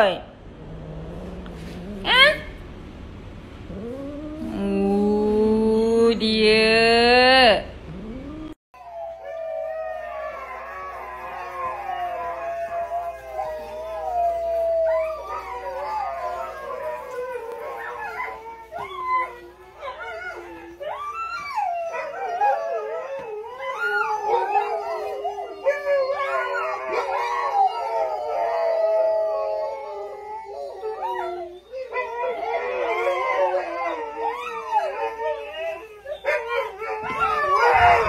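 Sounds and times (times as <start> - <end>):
dogs howling: 7.9 - 38.0.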